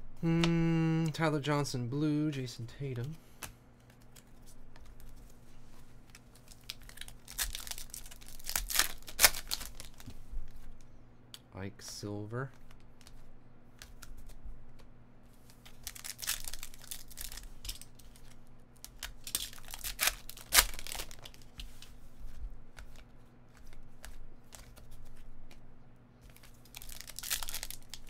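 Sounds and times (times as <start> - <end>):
foil wrapper tearing and crinkling: 6.1 - 10.1, 15.5 - 21.5, 26.3 - 28.0
loud foil crack: 6.3 - 10.0, 15.5 - 18.0, 18.8 - 21.4, 26.4 - 28.0.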